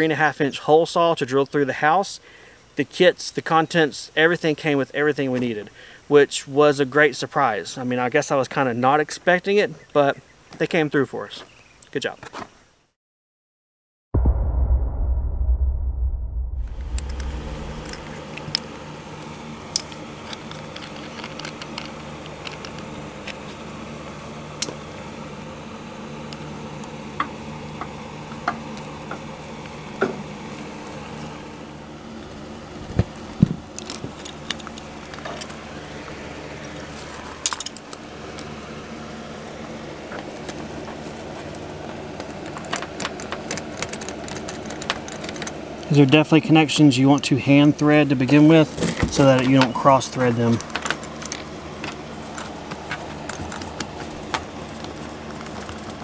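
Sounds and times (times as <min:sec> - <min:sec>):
low hum: 0:14.2 - 0:37.5.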